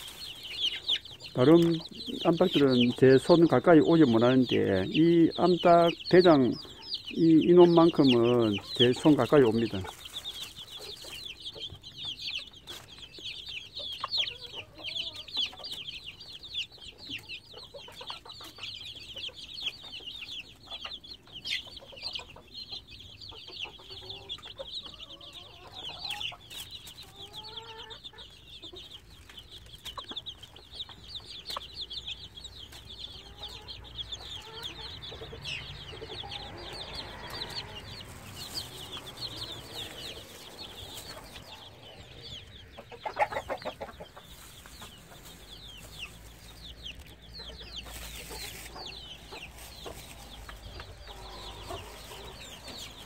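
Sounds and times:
chicks peeping: 0:00.0 - 0:53.0
hen clucking softly: 0:13.2 - 0:53.0.

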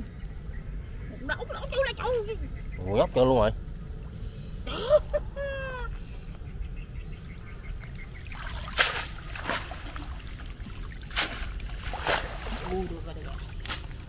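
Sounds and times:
water splashes: 0:08.0 - 0:14.0
wet net dragged from water: 0:08.4 - 0:12.8.

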